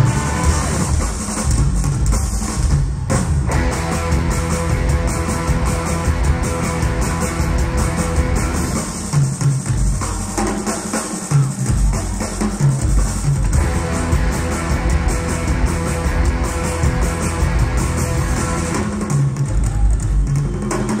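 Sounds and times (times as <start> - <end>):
electric guitar: 0.0 - 1.2, 3.1 - 9.1, 13.4 - 19.9
drum kit with cymbals: 0.0 - 21.0.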